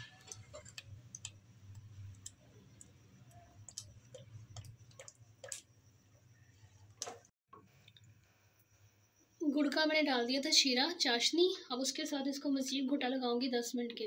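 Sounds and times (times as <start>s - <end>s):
spoon tapping metal pot: 0.0s - 2.4s.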